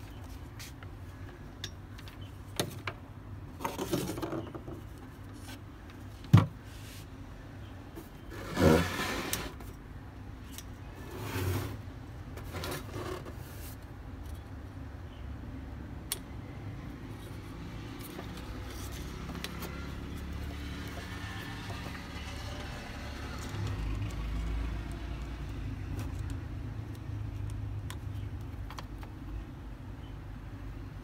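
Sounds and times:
cables scraping on wooden bench: 8.3s - 9.7s, 11.0s - 13.8s.

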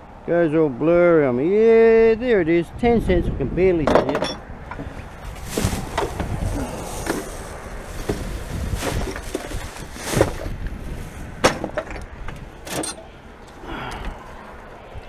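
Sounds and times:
rubbish knocking and clattering in bin: 4.0s - 10.6s, 11.4s - 12.0s.

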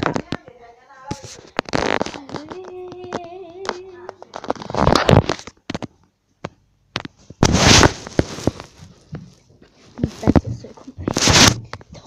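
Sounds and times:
phone rubbing against clothing: 1.2s - 2.8s, 7.4s - 8.9s, 9.8s - 11.8s.

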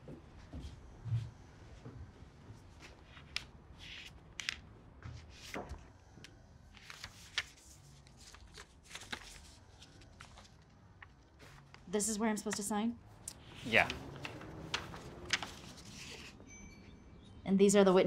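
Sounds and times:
paper rustling: 6.7s - 11.9s, 13.4s - 16.4s.

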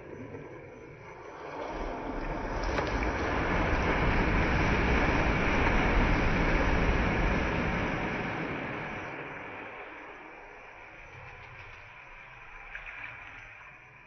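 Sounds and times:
wind buffeting microphone: 1.7s - 12.0s.

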